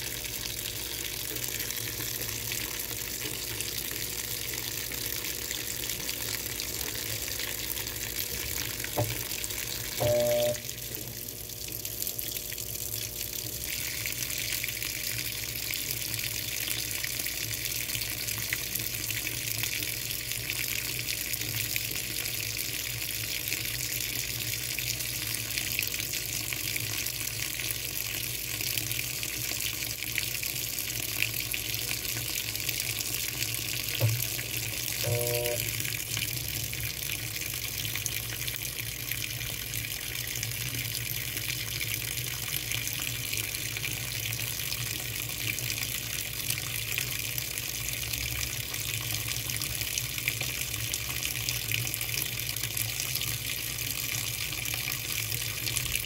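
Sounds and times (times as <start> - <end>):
low machine hum: 0.0 - 15.1, 33.9 - 36.0
water pouring into washing machine: 0.0 - 56.0
short tone: 9.9 - 11.0, 34.9 - 35.8.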